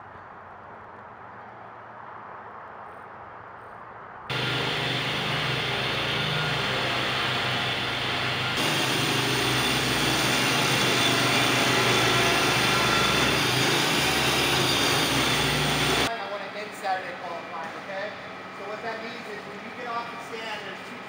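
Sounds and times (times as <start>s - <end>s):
construction machinery engines running: 4.3s - 21.0s.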